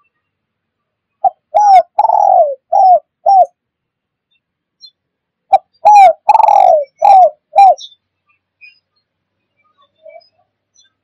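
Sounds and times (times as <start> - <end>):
dove cooing: 1.2 - 3.6, 5.5 - 7.9.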